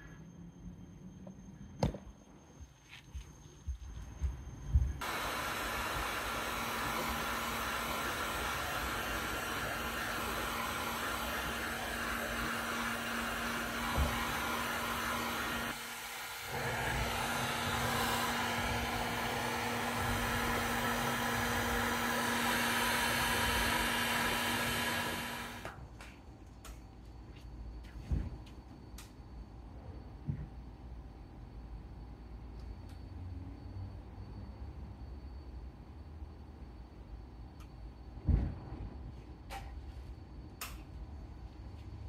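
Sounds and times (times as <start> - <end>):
heat gun blowing: 5.0 - 25.8.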